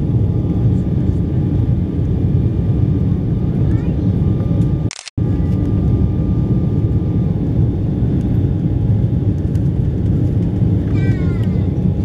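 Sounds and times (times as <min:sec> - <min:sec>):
jet engine and airflow rumble: 0:00.0 - 0:12.0.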